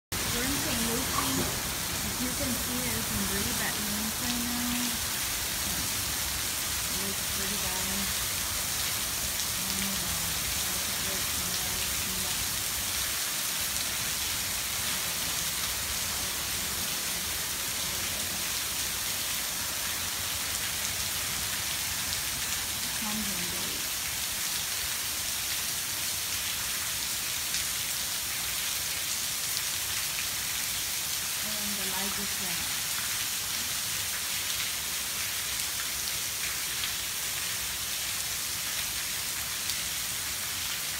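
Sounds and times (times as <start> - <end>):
heavy rain pouring: 0.1 - 40.9.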